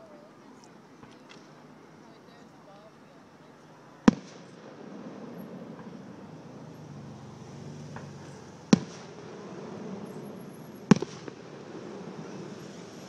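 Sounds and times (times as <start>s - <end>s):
firework shells bursting: 7.9s - 13.0s.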